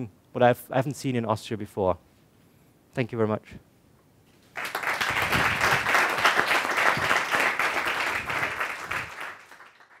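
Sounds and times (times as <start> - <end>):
audience applauding: 4.5 - 10.0.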